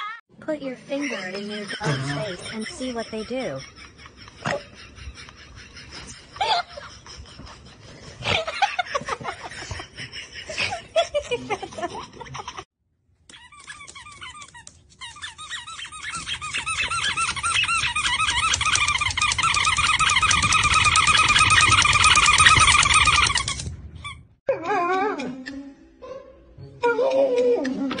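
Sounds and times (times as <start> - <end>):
person laughing: 0.9 - 12.6
dog whining: 13.3 - 23.7, 24.5 - 26.2
repeated high squeaks: 13.3 - 24.3.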